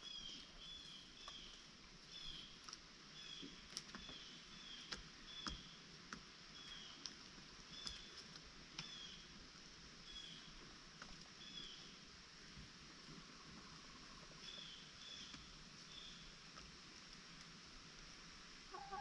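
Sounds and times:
chickens chirping: 0:18.7 - 0:19.0.

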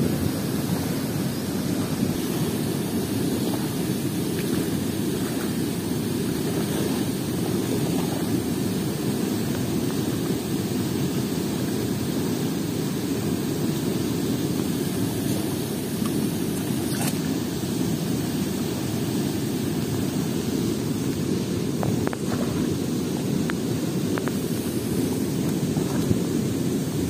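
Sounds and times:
rushing river water: 0:00.0 - 0:27.0.

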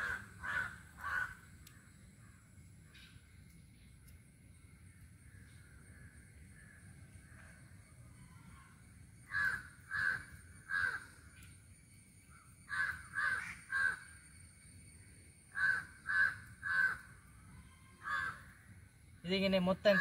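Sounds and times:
crow cawing: 0:00.0 - 0:01.7, 0:08.6 - 0:11.4, 0:12.7 - 0:14.2, 0:15.5 - 0:18.8.

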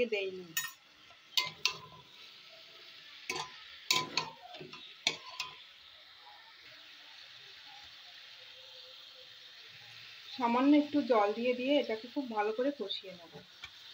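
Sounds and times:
faint sizzle: 0:00.0 - 0:13.9
metal spatula scraping a pan: 0:00.6 - 0:02.3, 0:03.3 - 0:05.7.

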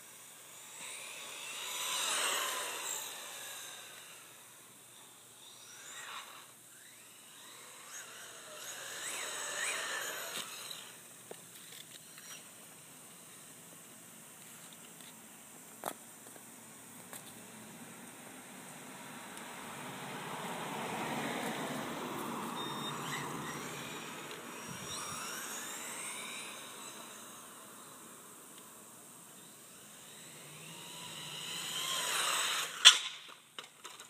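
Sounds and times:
rc truck motor whine: 0:00.0 - 0:13.6, 0:20.6 - 0:34.0.

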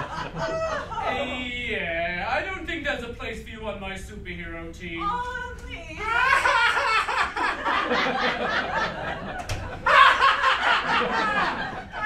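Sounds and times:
audience laughing: 0:00.0 - 0:01.4, 0:06.1 - 0:12.0.

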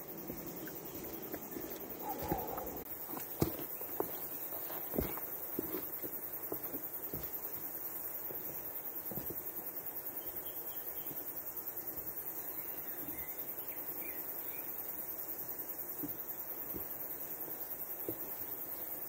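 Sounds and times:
footsteps on dirt track: 0:00.1 - 0:09.5.

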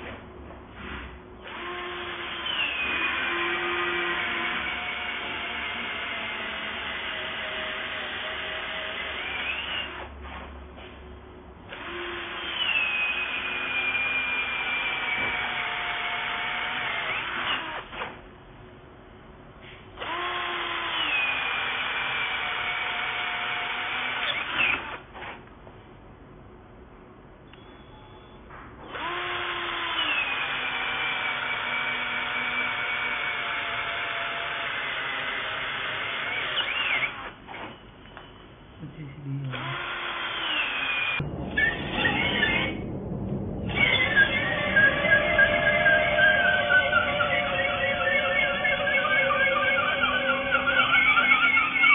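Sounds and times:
electric drill boring into wood: 0:01.4 - 0:10.1, 0:11.7 - 0:18.2, 0:20.0 - 0:25.4, 0:28.9 - 0:37.7, 0:39.5 - 0:41.2, 0:47.8 - 0:51.9.

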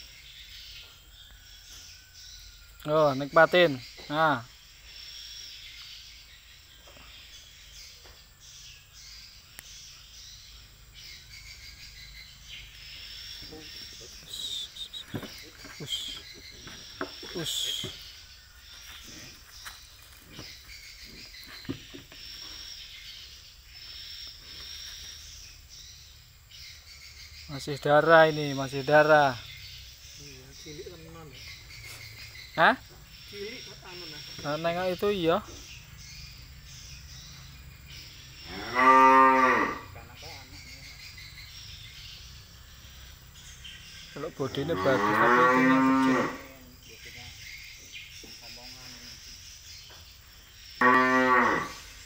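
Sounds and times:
insects chirping: 0:00.0 - 0:52.0
cow mooing: 0:38.5 - 0:40.0, 0:44.7 - 0:46.5, 0:50.8 - 0:51.9.

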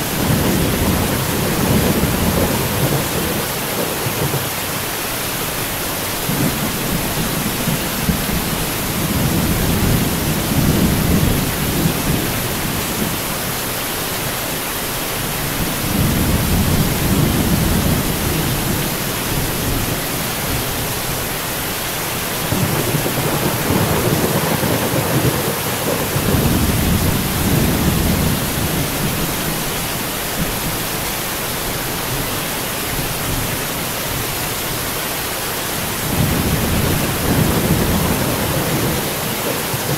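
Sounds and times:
low rolls of thunder: 0:00.0 - 0:04.8, 0:06.2 - 0:13.2, 0:15.6 - 0:20.7, 0:22.3 - 0:29.8, 0:35.9 - 0:39.9
steady rain: 0:00.0 - 0:39.9.

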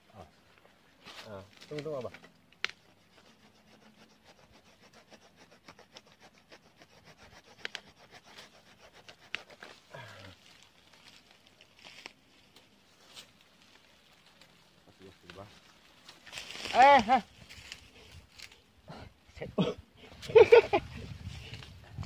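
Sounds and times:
hand saw rasping through roots: 0:02.6 - 0:10.0.

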